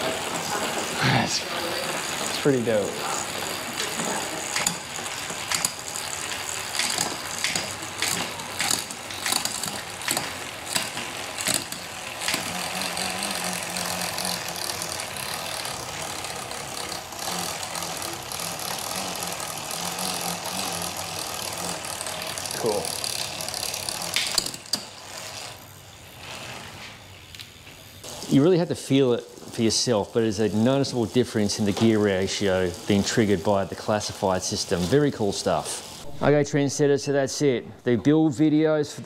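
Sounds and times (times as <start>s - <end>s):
bicycle chain running: 0.0s - 36.1s.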